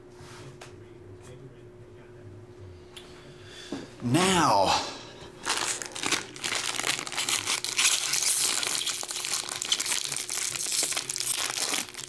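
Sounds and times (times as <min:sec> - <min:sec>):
foil wrapper crinkling: 0:05.4 - 0:12.0.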